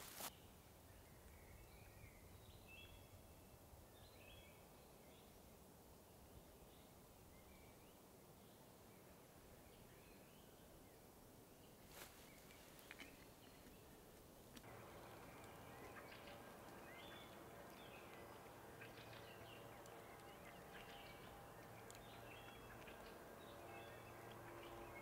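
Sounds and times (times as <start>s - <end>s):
faint steady hum: 0.0s - 25.0s
small birds chirping: 6.7s - 25.0s.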